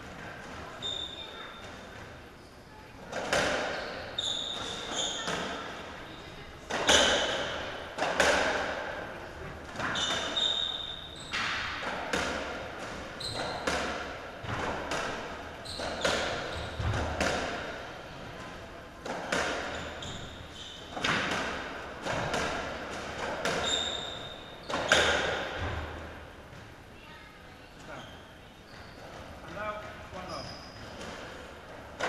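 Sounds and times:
shoe squeaks on court floor: 0.8s - 1.8s, 3.4s - 7.8s, 9.8s - 11.6s, 13.2s - 13.8s, 15.6s - 17.0s, 19.4s - 21.1s, 23.5s - 25.6s, 27.8s - 31.5s.

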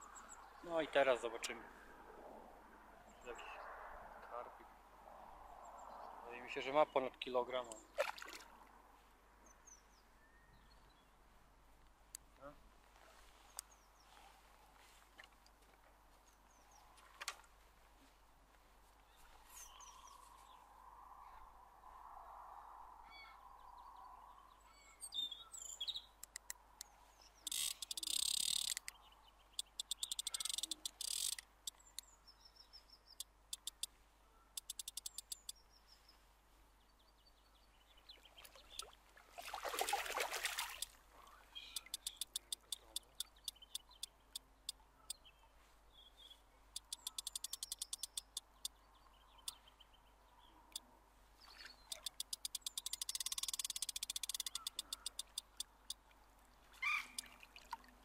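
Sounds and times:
faint bird chirps: 23.0s - 26.2s, 26.8s - 36.2s, 40.8s - 50.8s, 51.4s - 56.0s, 56.8s - 57.3s
fishing reel drag clicking: 27.5s - 28.9s, 29.6s - 31.8s, 33.6s - 33.9s, 34.6s - 35.5s, 41.8s - 43.9s, 46.8s - 48.5s, 51.9s - 55.7s.

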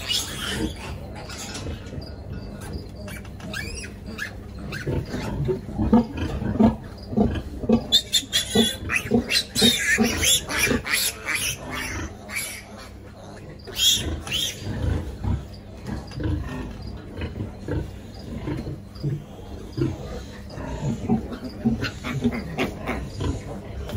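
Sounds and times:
piglets squealing: 0.0s - 15.1s, 21.0s - 23.5s
sow grunting: 0.0s - 23.9s.

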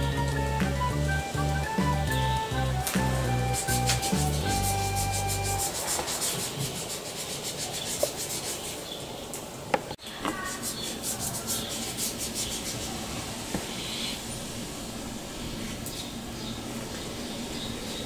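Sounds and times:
marker scratching on paper: 3.6s - 8.8s, 10.3s - 12.9s.

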